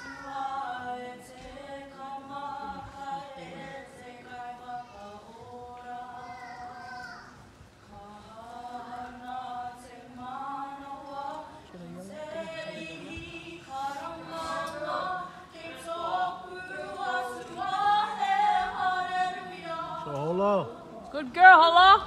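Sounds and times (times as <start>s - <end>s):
women singing a cappella: 0.0s - 22.0s.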